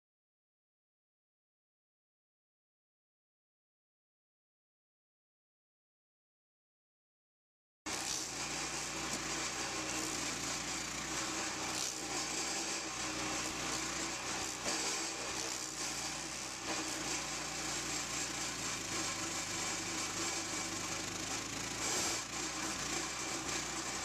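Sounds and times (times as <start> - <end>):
cutter wheel grinding wood: 7.9 - 24.0
stump grinder engine running: 7.9 - 24.0.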